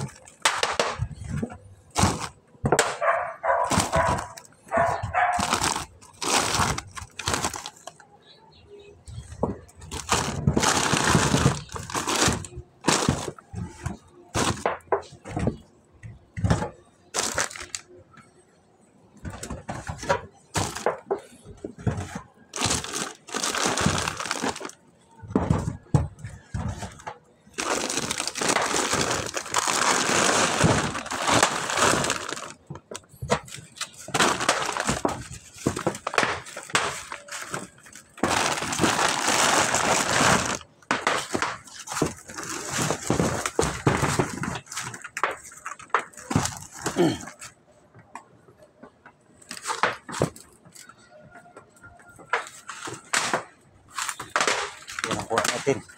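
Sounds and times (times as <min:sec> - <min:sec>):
plastic bag rustling and crinkling: 0:00.0 - 0:08.0, 0:09.1 - 0:15.6, 0:17.1 - 0:17.9, 0:19.4 - 0:21.0, 0:21.6 - 0:24.8, 0:25.5 - 0:47.4, 0:53.9 - 0:55.9
sharp cracks and knocks: 0:27.6 - 0:39.3, 0:40.8 - 0:47.0, 0:52.2 - 0:55.9.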